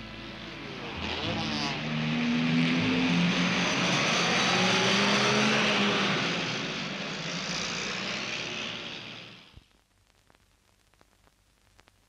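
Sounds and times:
car engine revving: 0.7s - 6.9s.

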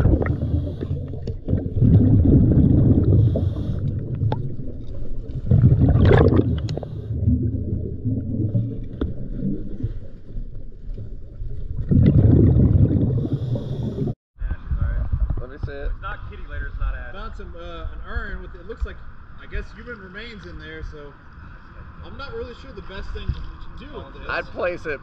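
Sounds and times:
diver's exhaled bubbles underwater: 0.0s - 14.2s
muffled rumble of water: 0.0s - 25.0s.

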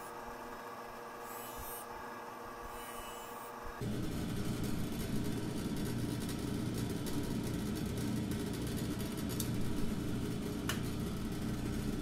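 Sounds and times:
bench buffer motor humming: 0.0s - 7.6s.

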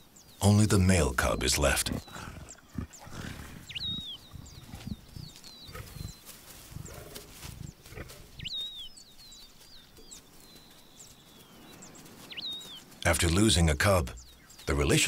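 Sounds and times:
leopards grunting: 0.4s - 8.4s.

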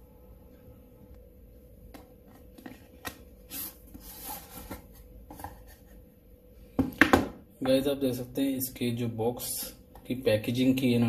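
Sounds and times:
cardboard rubs and scrapes: 3.4s - 6.0s.

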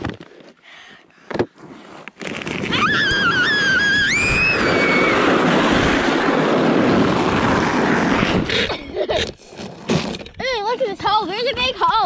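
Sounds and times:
wind on camera: 2.4s - 9.4s
person squealing: 2.7s - 5.3s
sled runners scraping over snow: 4.2s - 12.0s.

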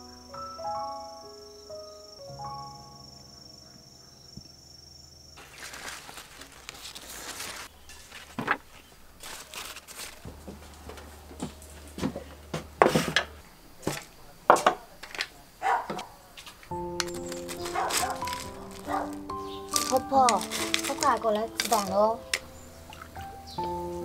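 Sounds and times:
soft rustling: 5.4s - 13.2s, 15.0s - 23.2s.

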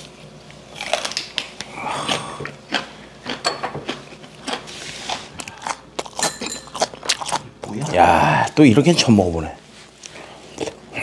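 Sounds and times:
crisp chewing: 0.0s - 8.6s.

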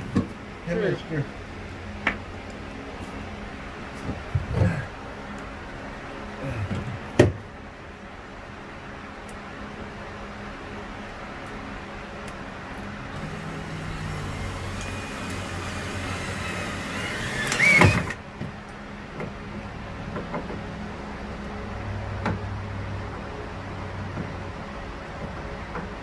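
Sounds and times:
cordless drill whining: 13.2s - 18.2s.

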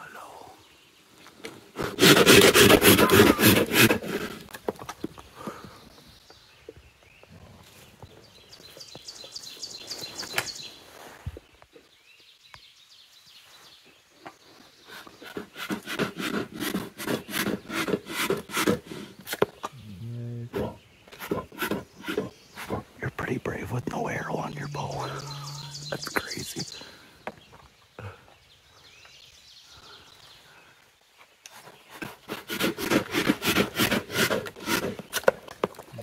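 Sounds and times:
claws scraping tree bark: 1.8s - 4.8s, 14.8s - 19.7s, 21.1s - 23.0s, 31.5s - 35.9s.

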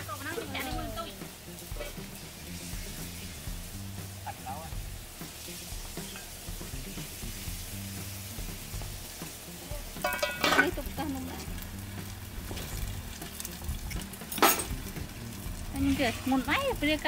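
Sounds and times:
food sizzling and crackling in pots: 0.0s - 17.0s
metal pot lid clinking: 10.0s - 10.8s, 14.0s - 14.8s.

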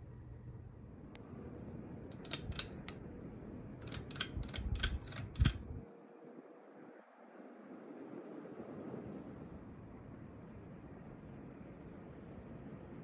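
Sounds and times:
ceiling fan whirring: 0.0s - 13.0s
sharp clicks: 2.1s - 3.0s, 3.8s - 5.6s.

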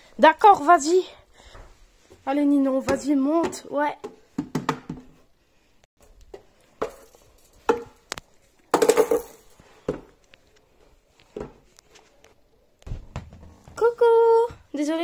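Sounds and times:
doll knocking on wooden stairs: 4.4s - 5.1s.

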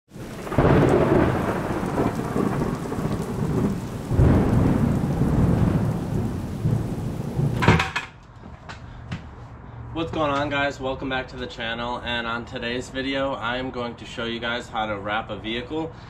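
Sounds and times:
rain hissing: 0.1s - 7.6s
thunder rolling: 0.1s - 8.0s.

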